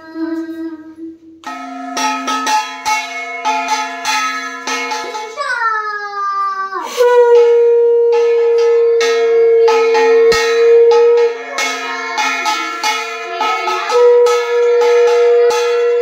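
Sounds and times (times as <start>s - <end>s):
bell ringing: 1.4s - 5.9s, 6.9s - 16.0s
conch shell blast: 6.9s - 16.0s.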